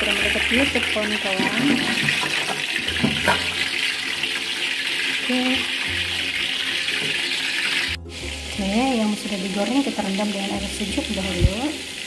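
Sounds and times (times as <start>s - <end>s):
oil popping: 0.0s - 8.9s
food sizzling in hot oil: 0.0s - 12.0s.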